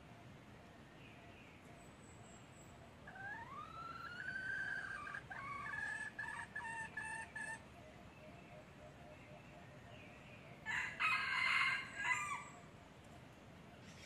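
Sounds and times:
rooster crowing: 10.6s - 12.6s.

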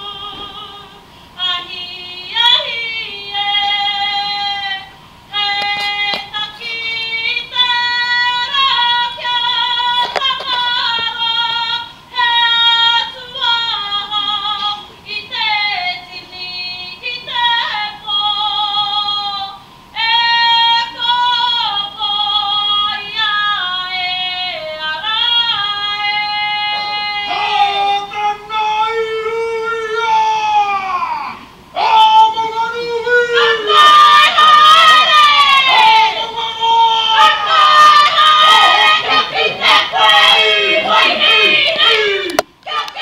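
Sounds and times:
woman singing slow melody: 0.0s - 27.9s.

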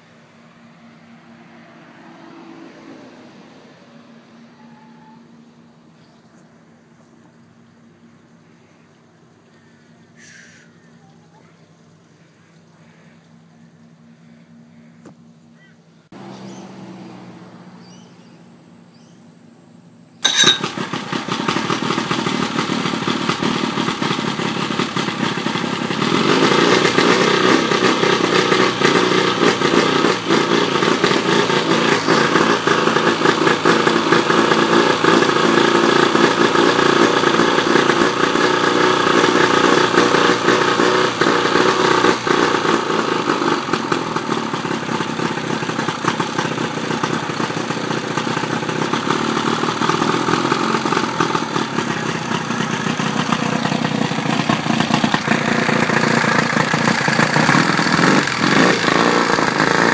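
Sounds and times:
outboard engine starting and running: 16.1s - 19.2s, 20.1s - 59.9s.

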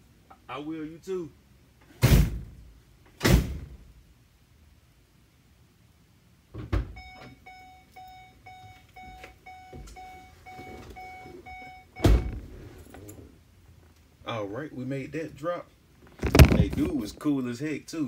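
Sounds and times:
van warning chime beeping: 6.9s - 13.3s
van door shutting with thud: 12.0s - 12.4s.

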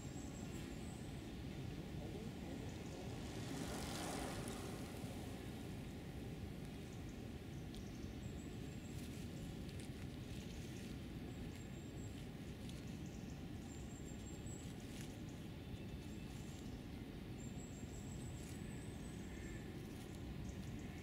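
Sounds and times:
hedgehog rustling and ticking: 7.6s - 17.0s.

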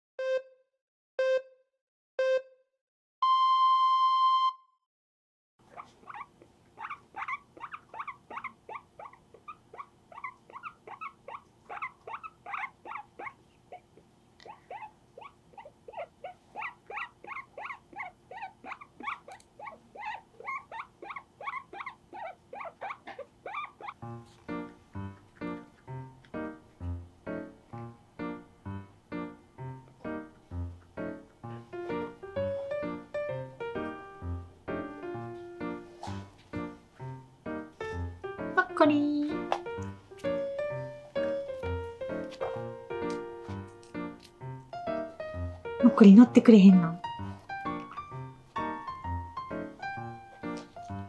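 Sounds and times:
countdown beeps: 0.2s - 0.5s, 1.2s - 1.5s, 2.2s - 2.5s, 3.2s - 4.7s
guinea pig squeaking: 5.6s - 24.0s.

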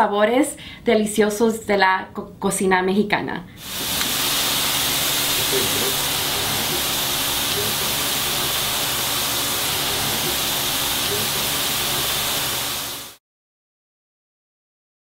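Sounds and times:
shrimp sizzling in a skillet: 3.6s - 13.2s.

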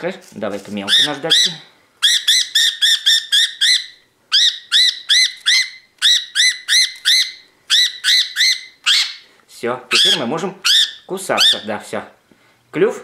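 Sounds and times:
budgerigar squawking: 0.8s - 9.3s, 9.9s - 11.8s.

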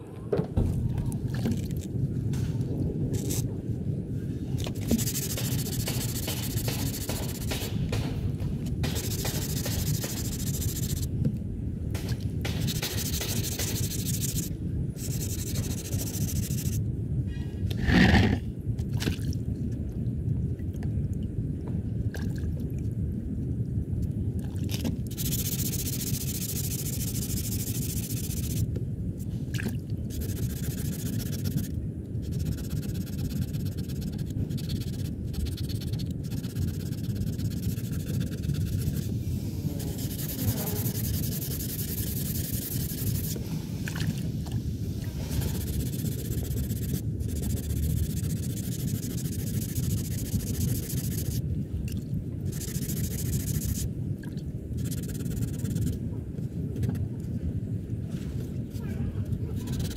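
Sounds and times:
sanding scraping on car bumper: 4.9s - 7.7s, 8.9s - 11.1s, 39.8s - 43.4s.

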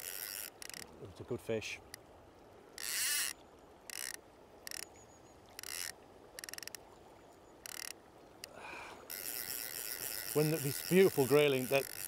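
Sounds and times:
fishing reel ratchet clicking: 0.0s - 0.9s, 2.8s - 4.9s, 5.6s - 6.8s, 7.7s - 7.9s, 9.1s - 12.0s.

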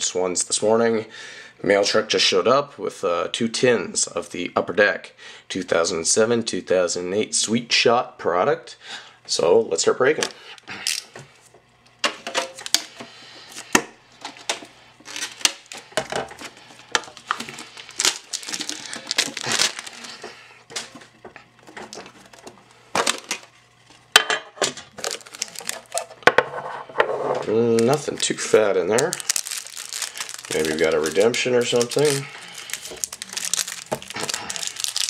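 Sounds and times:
plastic wrap crinkling: 12.6s - 23.5s, 24.9s - 26.2s, 27.5s - 35.0s.

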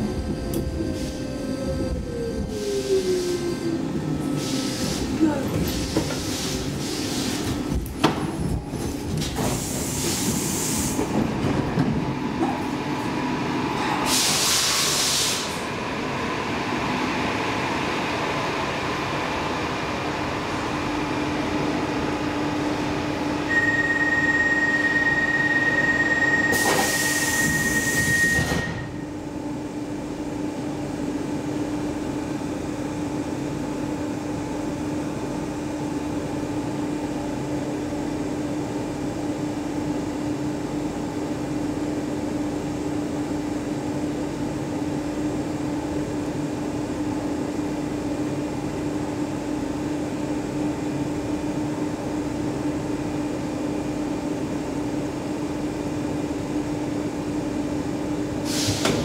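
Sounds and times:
metro train running and stopping: 0.0s - 59.0s
train standing hum: 0.0s - 59.0s
air hiss bursts: 14.1s - 15.6s, 58.5s - 59.0s.

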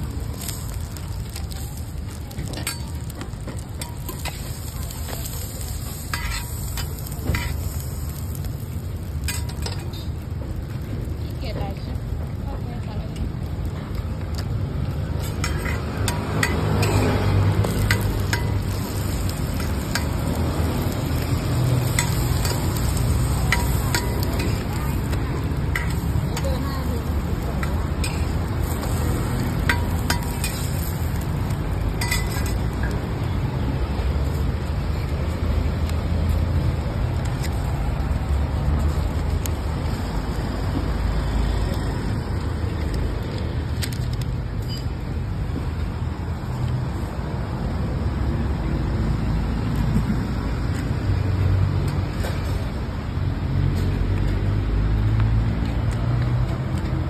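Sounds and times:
low street rumble: 0.0s - 57.0s
metal spatula clicking on griddle: 0.3s - 10.1s, 15.2s - 33.0s.

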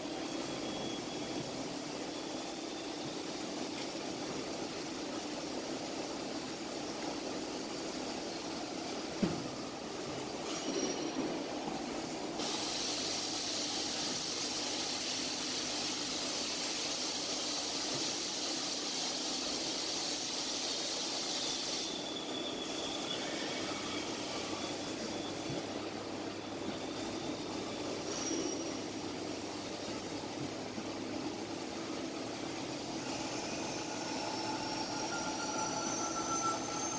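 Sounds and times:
coolant spray hiss: 12.4s - 22.2s.

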